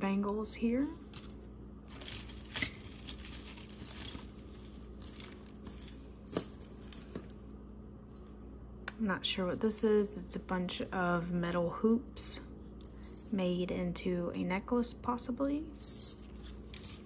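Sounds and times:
jewelry clinking and jangling: 0:00.8 - 0:07.5, 0:12.7 - 0:13.4, 0:15.4 - 0:17.0.

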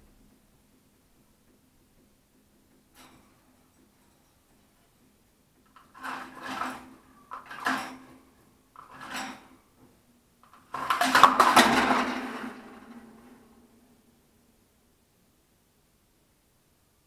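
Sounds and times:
water pot rattling in birdcage: 0:05.7 - 0:09.6.

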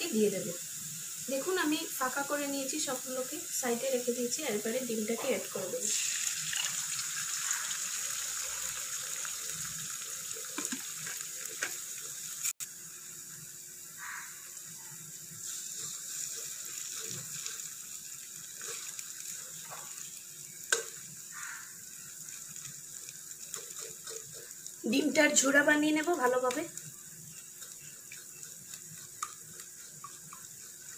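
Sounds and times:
eggs sizzling in hot oil: 0:00.0 - 0:30.9
spatula tap: 0:10.6 - 0:10.9
spatula scraping pan: 0:23.3 - 0:24.7.

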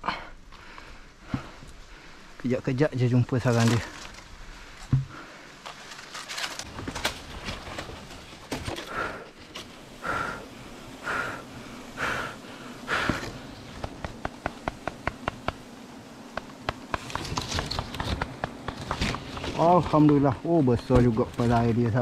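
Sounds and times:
hard breath puffs: 0:08.8 - 0:09.4, 0:10.0 - 0:13.4.

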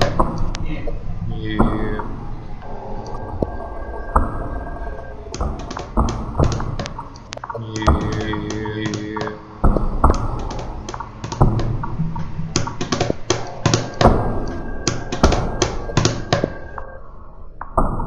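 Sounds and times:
sharp electronic clicks and knocks: 0:00.0 - 0:17.0
low rumble: 0:00.0 - 0:18.0.

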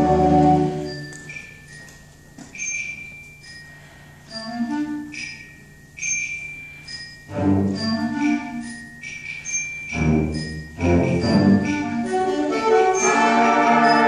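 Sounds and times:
mallet percussion strikes: 0:04.3 - 0:14.0.

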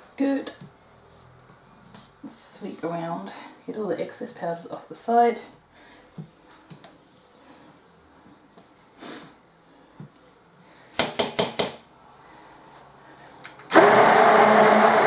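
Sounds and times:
stick blender running: 0:13.7 - 0:15.0.

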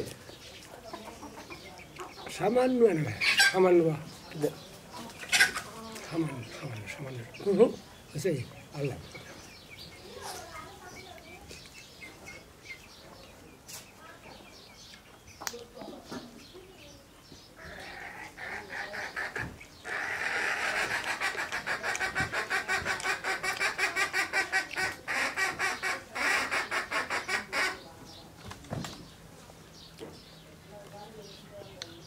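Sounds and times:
poultry calling: 0:00.0 - 0:13.3, 0:16.0 - 0:28.2.

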